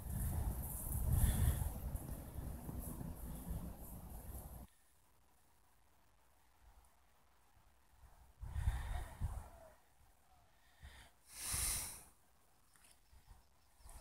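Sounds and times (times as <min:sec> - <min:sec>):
person exhaling: 0:10.6 - 0:12.1.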